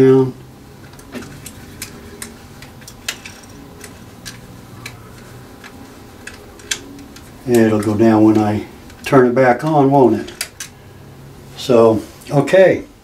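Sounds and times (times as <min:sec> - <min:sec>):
printer mechanism clicks: 0:00.9 - 0:09.2.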